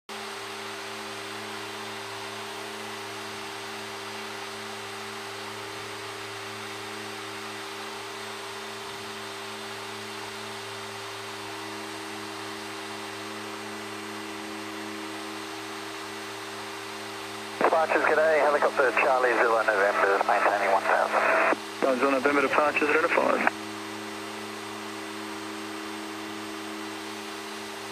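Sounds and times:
turboprop cockpit drone: 0.1 - 27.9.

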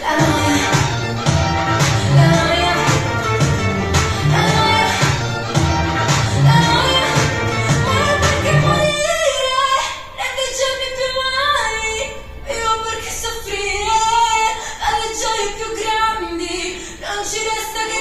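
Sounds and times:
pop song with female vocal: 0.0 - 18.0.

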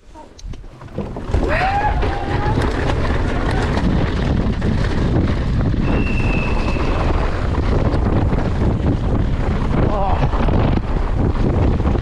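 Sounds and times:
wind buffeting microphone: 0.3 - 12.0.

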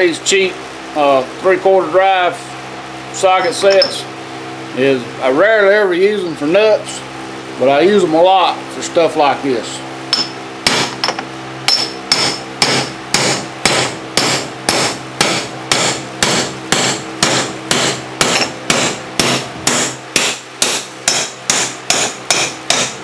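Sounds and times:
hammer blows ringing on metal: 10.1 - 11.0, 11.7 - 23.0.

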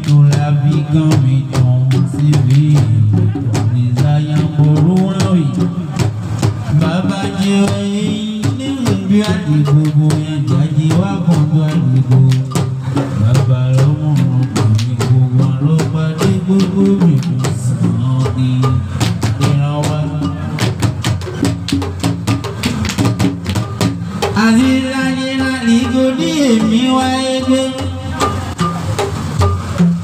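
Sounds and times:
man singing: 0.0 - 6.1, 6.7 - 21.5, 24.2 - 28.6
box drum struck by hands: 0.0 - 30.0.

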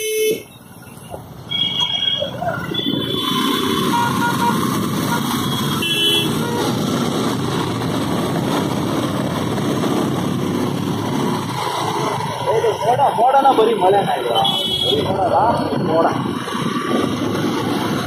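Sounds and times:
vehicle horn toots: 0.0 - 0.5, 1.5 - 6.8, 14.3 - 15.1.

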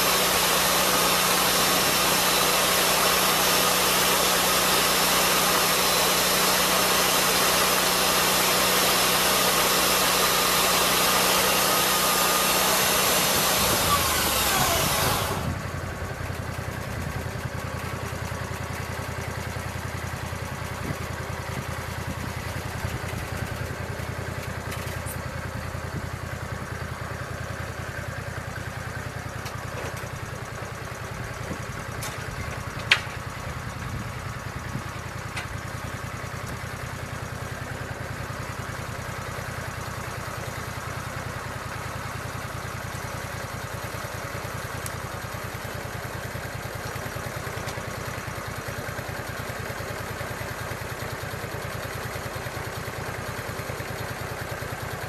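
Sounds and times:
circular blade sawing log: 0.0 - 15.6
sawmill engine running: 0.0 - 55.0.

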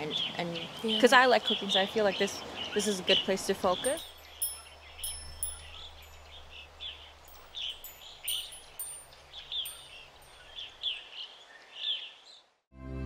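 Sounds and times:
birds chirping: 0.1 - 12.1
wind chime bells ringing: 3.8 - 10.8.

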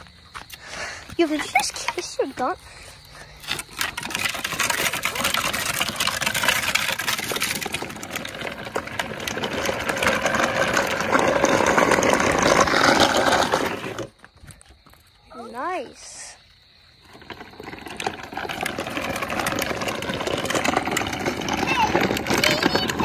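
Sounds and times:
plastic wheels rattling and skidding: 0.0 - 23.0.

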